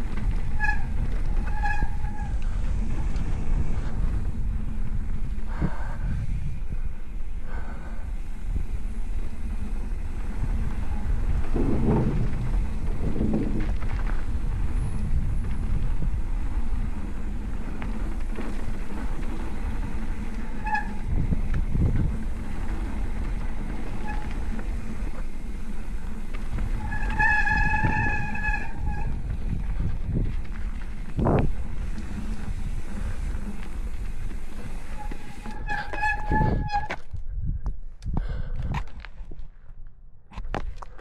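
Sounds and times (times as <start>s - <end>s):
disc brakes squealing: 0.0s - 3.0s, 10.5s - 14.1s, 17.9s - 29.7s, 31.7s - 37.0s
wind buffeting microphone: 0.0s - 39.4s
bike tyres rumbling on dirt: 0.0s - 41.0s.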